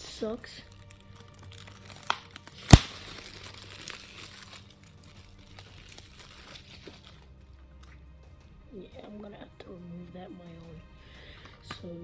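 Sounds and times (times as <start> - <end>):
plastic wrap crinkling: 0.6 - 8.0
sharp plastic snap: 2.0 - 3.0.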